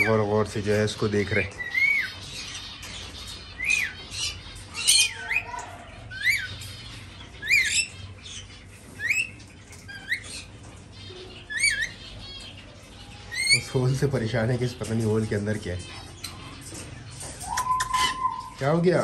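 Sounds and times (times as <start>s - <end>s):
lorikeets squawking: 0.0s - 19.0s.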